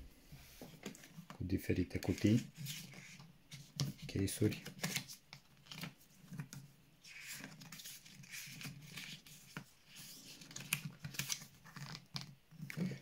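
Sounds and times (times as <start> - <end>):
paper rustling and crinkling: 0.5 - 13.0.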